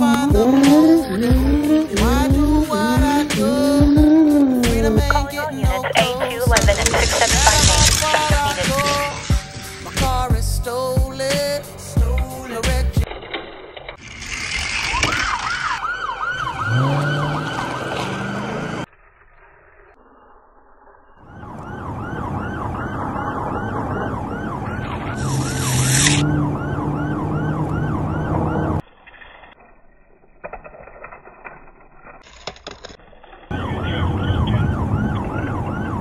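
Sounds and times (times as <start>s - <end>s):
low rising drone: 0.0s - 10.4s, 14.0s - 28.9s
police siren yelping: 0.2s - 9.4s, 14.7s - 18.9s, 21.2s - 28.8s, 33.5s - 36.0s.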